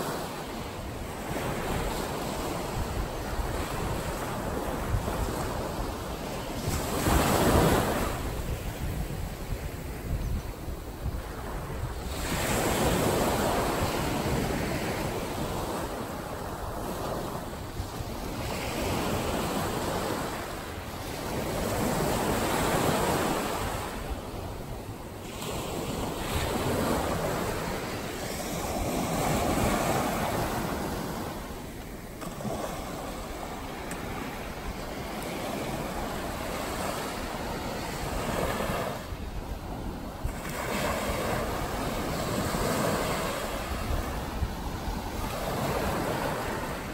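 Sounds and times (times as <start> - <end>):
waves breaking on a beach: 0.0 - 46.9.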